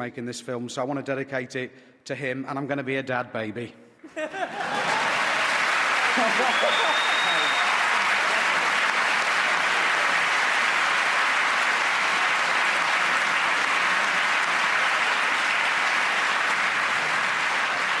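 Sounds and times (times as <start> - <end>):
large audience applauding: 4.5 - 18.0.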